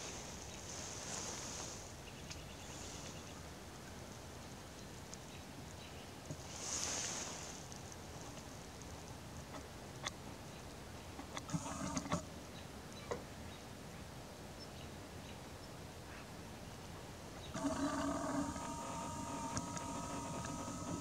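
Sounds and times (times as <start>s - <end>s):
lens zoom motor whirring: 17.6s - 21.0s.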